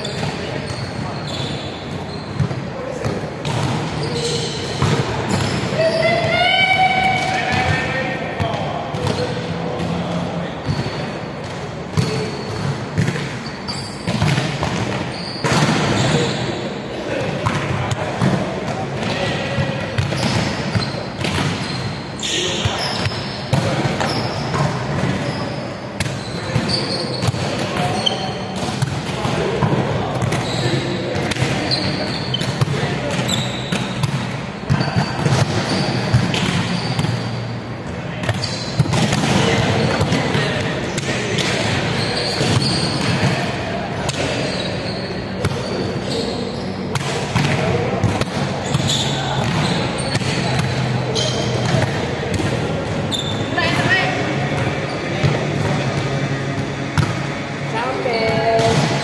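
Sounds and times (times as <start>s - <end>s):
players' indistinct calls: 0.0s - 59.0s
sneaker squeaks: 0.0s - 59.0s
volleyball slaps: 10.7s - 13.4s, 14.0s - 16.2s, 17.4s - 21.7s, 26.0s - 37.2s, 38.2s - 44.5s, 46.9s - 53.0s, 54.5s - 57.4s, 58.3s - 59.0s
volleyball smacks echoing: 38.2s - 44.5s.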